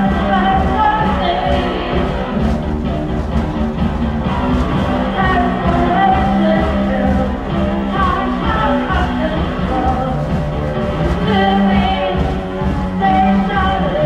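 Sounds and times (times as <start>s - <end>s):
person singing: 0.0s - 2.5s, 4.8s - 10.4s, 11.2s - 14.0s
live rock band playing: 0.0s - 14.0s.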